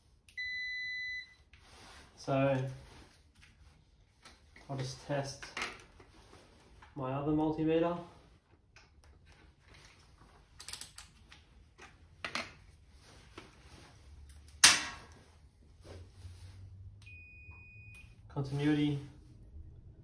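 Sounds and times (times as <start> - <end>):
multimeter continuity beep: 0.3 - 1.4, 17.0 - 18.2.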